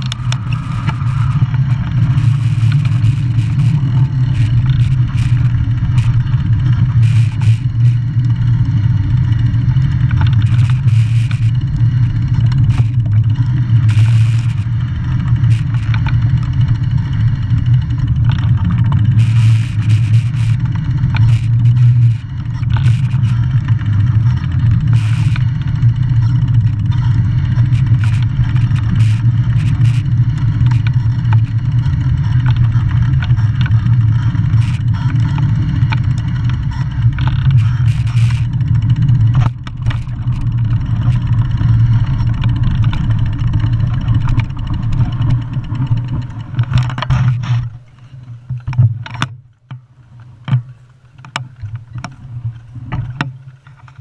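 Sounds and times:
bicycle tyre rumble on pavement: 0:00.0 - 0:49.1
wind: 0:00.0 - 0:54.0
rattling clicks from bumps: 0:17.5 - 0:49.4.

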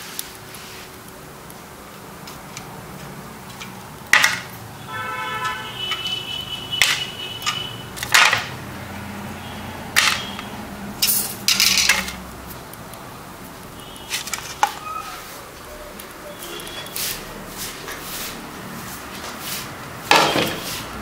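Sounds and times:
dishes and utensils clinking: 0:10.0 - 0:12.2.

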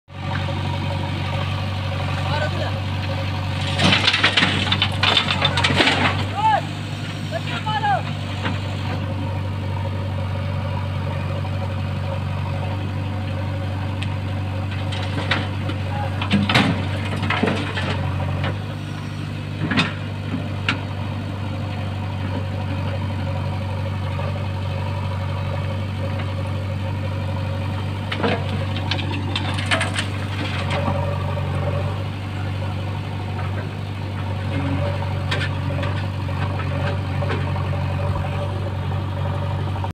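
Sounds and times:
diesel engine running: 0:00.1 - 0:39.9
bucket and stones clattering: 0:03.6 - 0:06.3, 0:28.2 - 0:30.9.

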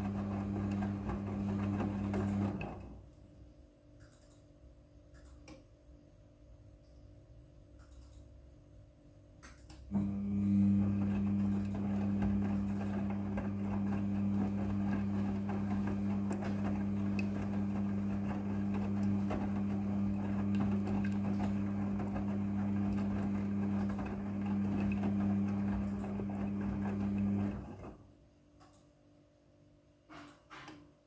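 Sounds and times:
washing machine motor hum: 0:00.0 - 0:03.2, 0:09.9 - 0:28.1
wet laundry tumbling: 0:10.7 - 0:27.8.

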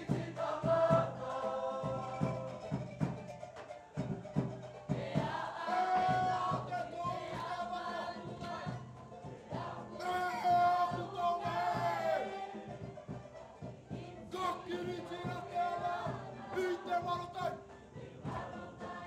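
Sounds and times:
choir singing in parts: 0:00.0 - 0:19.0
percussion beat: 0:00.0 - 0:19.0.

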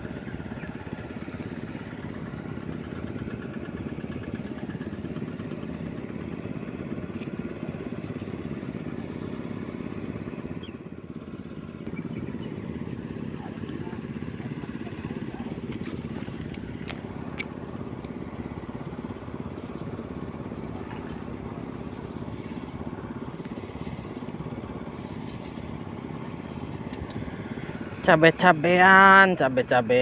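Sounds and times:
small engine running: 0:00.0 - 0:30.0.

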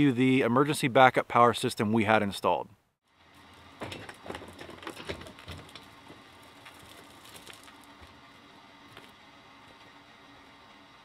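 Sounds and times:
generator frame and wheels rattling: 0:03.1 - 0:11.0.

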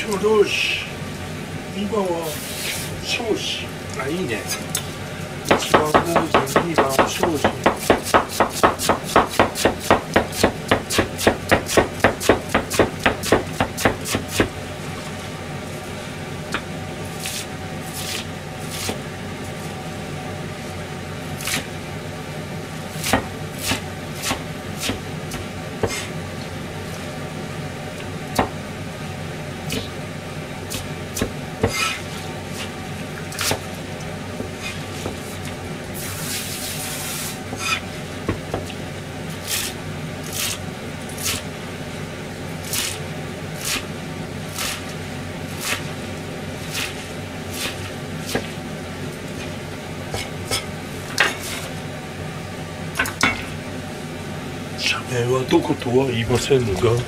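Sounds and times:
knife chopping on plastic board: 0:05.5 - 0:14.5, 0:23.0 - 0:26.1, 0:30.7 - 0:32.0.

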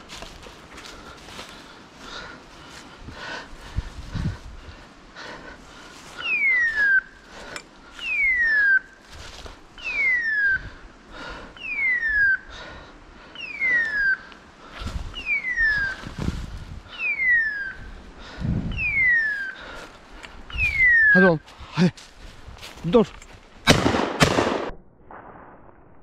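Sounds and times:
footsteps rustling in dry leaves: 0:00.0 - 0:04.9, 0:05.6 - 0:07.5, 0:08.9 - 0:10.0, 0:14.6 - 0:16.9, 0:19.3 - 0:23.6.

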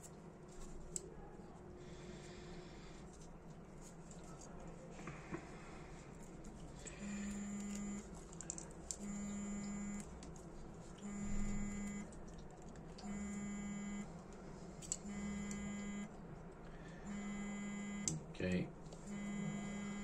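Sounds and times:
handling clicks and rustles: 0:03.0 - 0:09.0
electronic buzzer low tone: 0:06.9 - 0:08.1, 0:09.0 - 0:10.1, 0:11.0 - 0:12.1, 0:13.0 - 0:14.1, 0:15.0 - 0:16.2, 0:17.0 - 0:18.2, 0:19.1 - 0:20.0.

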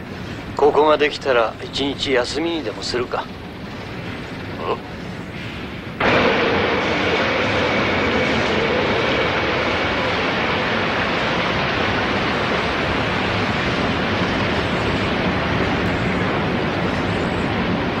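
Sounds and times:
faint high whine: 0:00.0 - 0:18.0
torrent of water rushing: 0:06.0 - 0:18.0.

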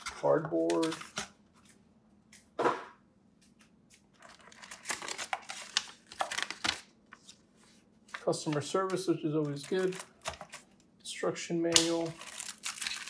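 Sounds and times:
cardboard packaging rustling: 0:04.2 - 0:08.6, 0:12.2 - 0:13.0
packaging scrape: 0:12.2 - 0:13.0.

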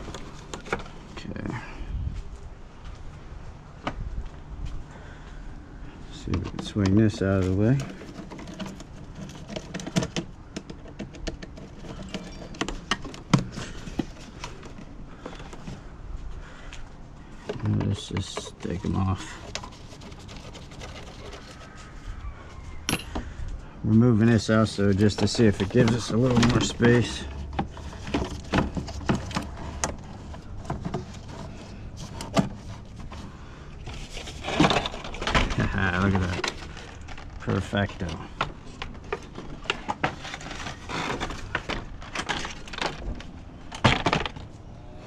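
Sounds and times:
plastic parts knocking and clicking: 0:07.7 - 0:15.8, 0:25.1 - 0:33.2, 0:33.9 - 0:44.5.

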